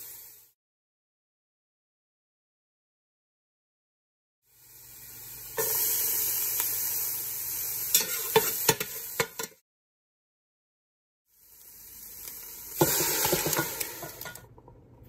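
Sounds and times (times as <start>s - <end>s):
onion sizzling in oil: 0.0s - 0.5s, 4.5s - 9.6s, 11.3s - 14.5s.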